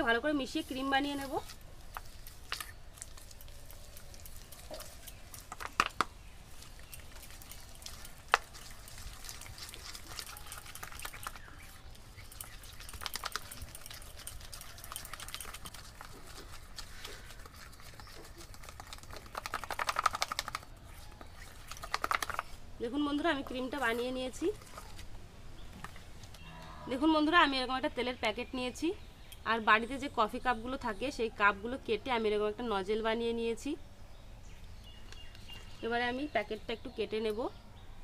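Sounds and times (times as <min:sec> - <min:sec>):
fork beating mixture in bowl: 0:06.6 - 0:20.6.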